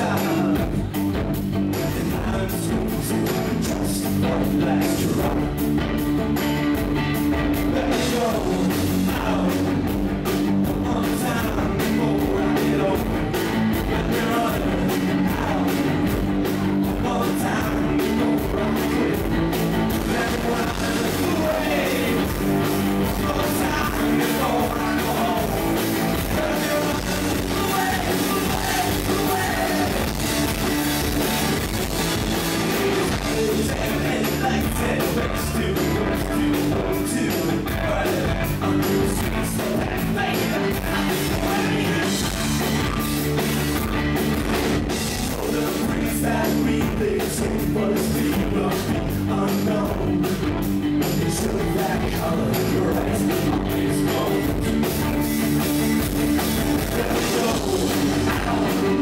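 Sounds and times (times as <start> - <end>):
bass guitar: 0.0 - 59.0
distorted electric guitars: 0.0 - 59.0
drum kit beat: 0.0 - 59.0.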